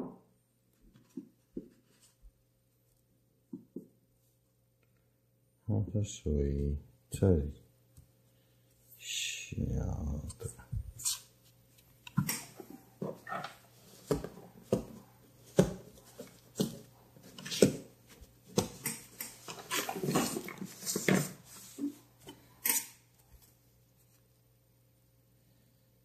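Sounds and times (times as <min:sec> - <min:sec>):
paper rustling: 0:13.2 - 0:22.0.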